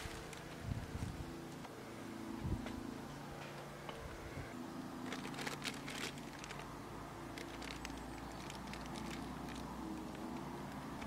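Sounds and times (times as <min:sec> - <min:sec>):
plastic bag crinkling: 0:00.0 - 0:00.6, 0:05.0 - 0:11.0
steady low hum: 0:00.0 - 0:11.0.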